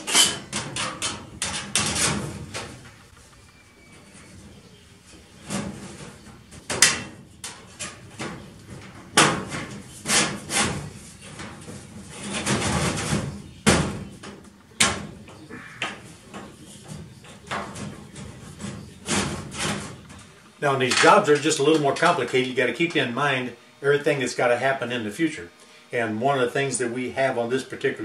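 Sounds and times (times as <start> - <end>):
sheet metal bangs and clatters: 0.0 - 3.3, 5.4 - 22.4
metal scraping rattle: 0.0 - 13.5, 14.8 - 22.6.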